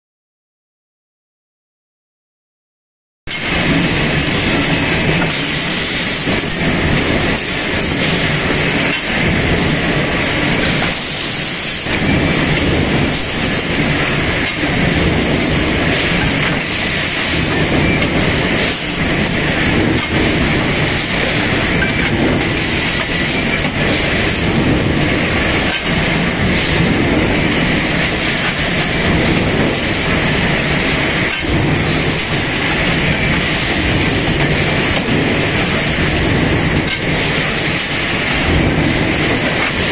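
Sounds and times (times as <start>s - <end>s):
factory machinery din: 3.3s - 39.9s.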